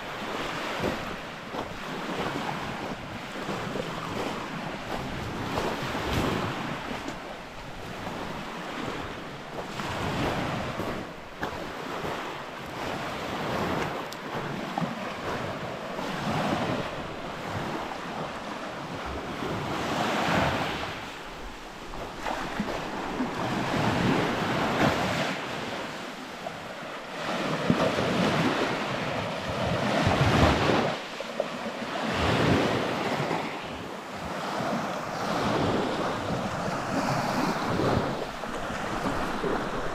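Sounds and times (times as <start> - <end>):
small waves washing on shingle: 0.0 - 39.9.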